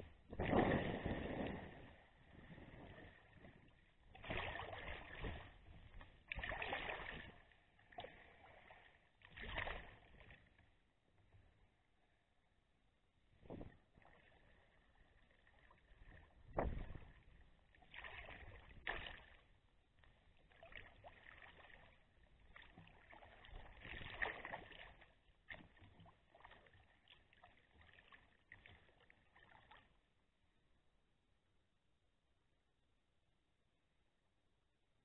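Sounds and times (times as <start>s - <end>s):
paddle splashing in water: 0.0s - 10.6s, 15.3s - 30.0s.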